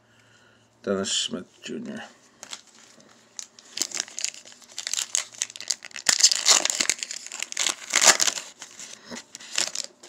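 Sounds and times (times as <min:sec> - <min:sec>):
wrapper crinkling and crackling: 0:02.4 - 0:10.0.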